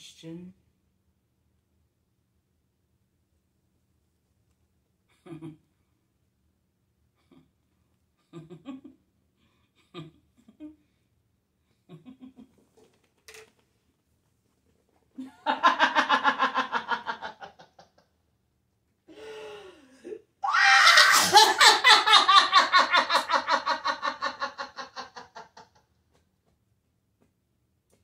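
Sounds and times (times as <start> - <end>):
person laughing hard: 15.2 - 18.0, 20.0 - 25.8.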